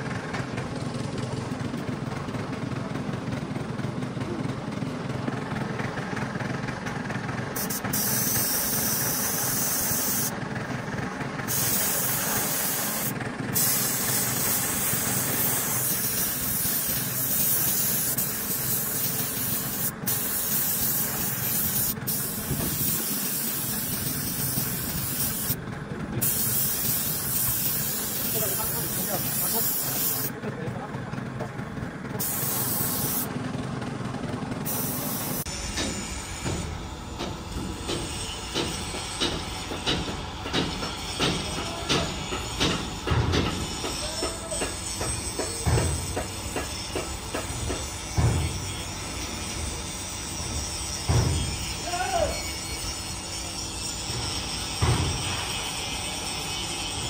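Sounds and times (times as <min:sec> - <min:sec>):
loud high spray hiss: 0:07.6 - 0:10.4, 0:11.4 - 0:25.6, 0:26.2 - 0:30.3, 0:32.2 - 0:33.3, 0:34.7 - 0:36.3.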